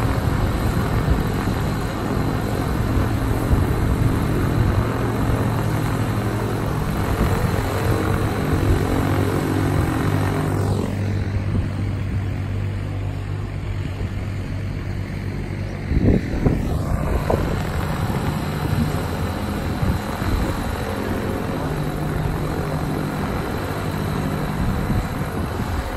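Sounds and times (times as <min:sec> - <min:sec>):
propeller aircraft engines droning: 0:00.0 - 0:25.9.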